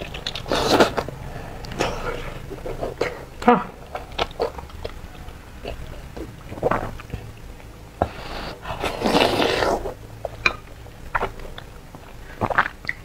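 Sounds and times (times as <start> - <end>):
noisy slurp: 0.0 - 3.3, 8.0 - 10.4.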